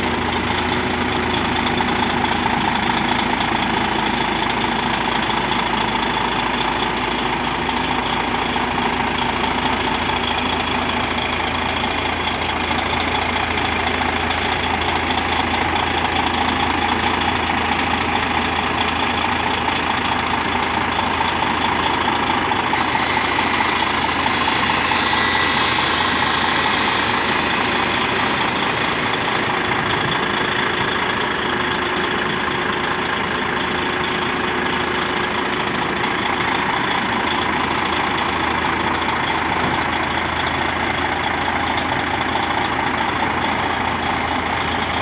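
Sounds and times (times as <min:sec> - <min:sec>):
truck diesel engine idling: 0:00.0 - 0:45.0
high hiss: 0:22.8 - 0:29.6.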